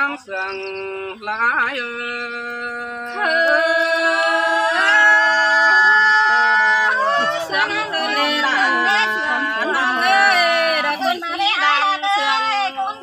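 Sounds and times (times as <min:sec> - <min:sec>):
person singing slow melody: 0:00.5 - 0:08.0.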